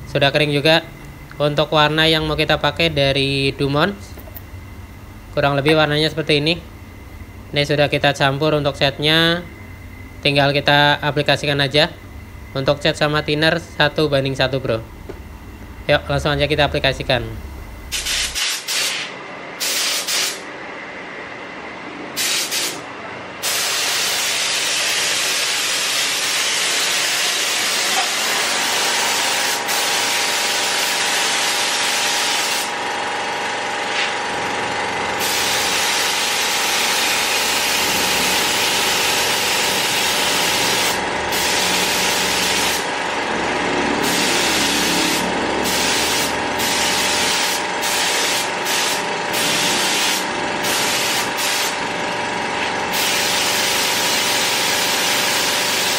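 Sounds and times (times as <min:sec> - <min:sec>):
faint mechanical hum: 0:00.0 - 0:55.9
air spray gun hissing: 0:17.9 - 0:20.5, 0:22.2 - 0:22.8, 0:23.4 - 0:32.8, 0:33.9 - 0:34.2, 0:35.2 - 0:43.0, 0:44.0 - 0:51.8, 0:52.6 - 0:55.9.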